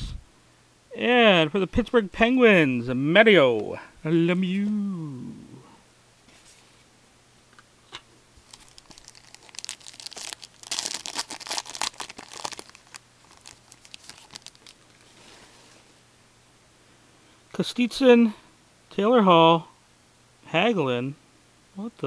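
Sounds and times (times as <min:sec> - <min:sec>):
wrapper tearing and crinkling: 0:08.4 - 0:15.2.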